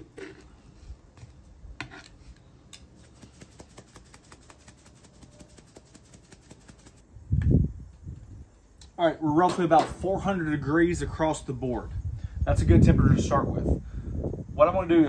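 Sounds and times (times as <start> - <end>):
spice shaker rattling: 2.8 - 7.0.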